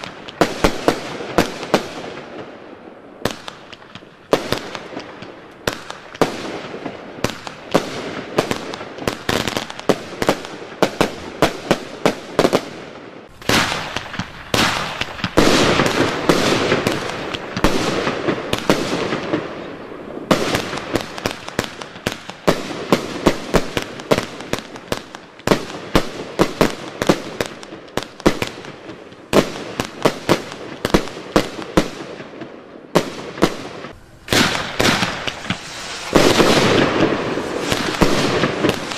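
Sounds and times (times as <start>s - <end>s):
firework launch thumps and bursts: 13.4s - 19.4s, 34.3s - 38.9s.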